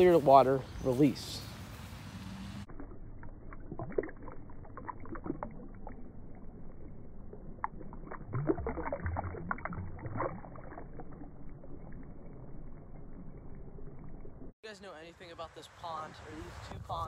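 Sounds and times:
slowed-down water splashing: 1.6 - 14.5.

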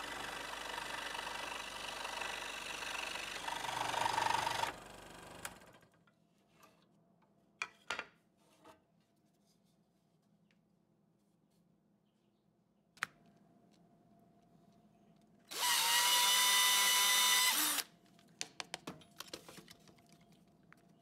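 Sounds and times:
scroll saw cutting wood: 0.0 - 4.8, 15.5 - 17.9.

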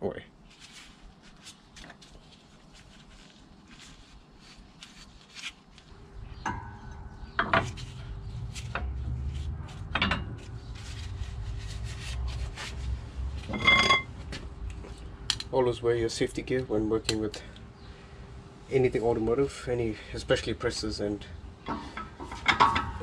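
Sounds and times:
ringing metal clanks: 6.3 - 8.9, 13.5 - 14.1, 21.7 - 23.0.

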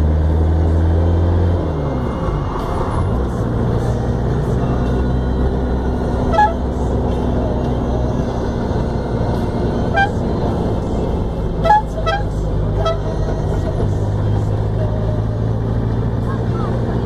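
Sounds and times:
van engine and road drone: 0.0 - 17.0
short horn toots: 6.2 - 6.7, 9.9 - 10.2, 11.6 - 13.1.

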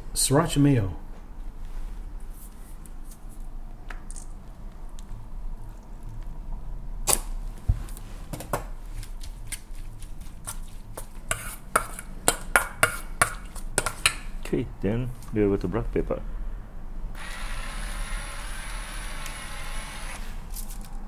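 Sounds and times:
metal spoon scraping metal bowl: 11.3 - 14.3.

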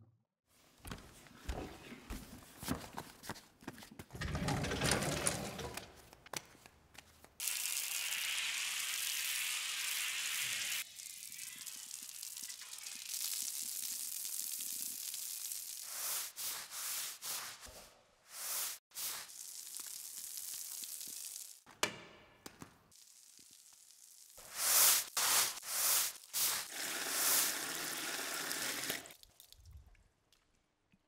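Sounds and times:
footsteps clicking and scuffing: 0.6 - 4.2, 5.8 - 7.4
water running from hose: 7.4 - 17.6, 18.4 - 21.7, 23.0 - 29.6
deck brush scrubbing wet tiles: 15.0 - 21.5, 24.4 - 29.1.

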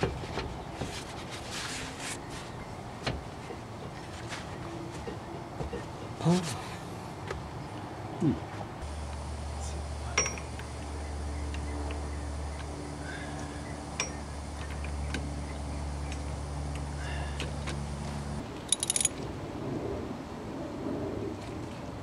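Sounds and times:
steady low hum: 0.0 - 22.0
metal tools clinking: 18.7 - 19.2.

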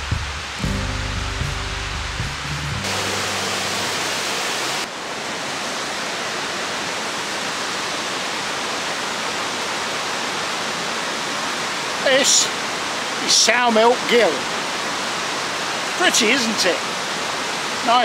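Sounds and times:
background music: 0.0 - 4.1
waterfall rushing: 0.0 - 18.0.

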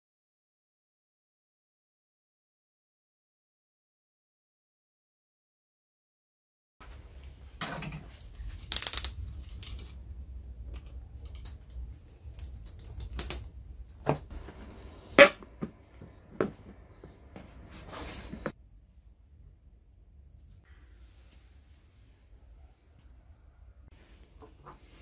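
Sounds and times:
plastic snapping: 12.3 - 13.5.

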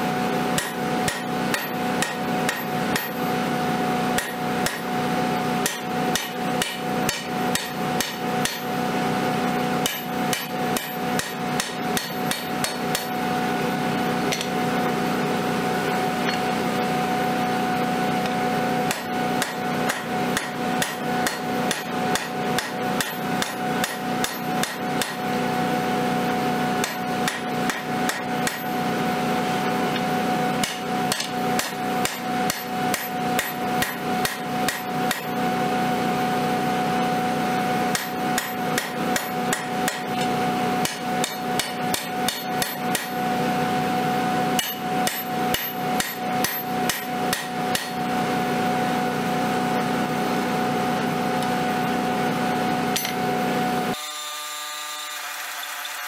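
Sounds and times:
hammer striking steel on an anvil: 0.5 - 3.2, 4.1 - 4.9, 5.6 - 8.8, 9.8 - 13.2, 14.3 - 14.6, 18.2 - 25.2, 26.8 - 28.8, 29.9 - 35.3, 37.9 - 43.2, 44.6 - 48.0, 52.9 - 53.3.

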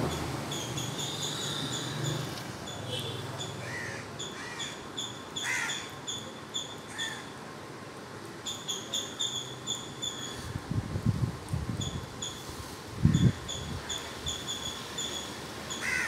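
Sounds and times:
crow cawing: 3.6 - 4.8, 5.4 - 5.9, 15.8 - 16.0.

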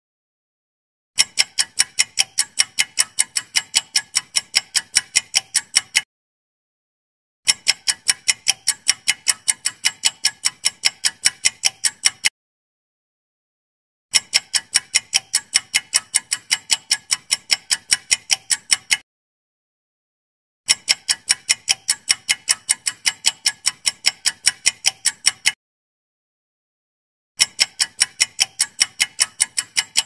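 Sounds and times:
rapid clock ticks: 1.2 - 6.1, 7.5 - 12.3, 14.1 - 19.0, 20.7 - 25.6, 27.4 - 30.0.

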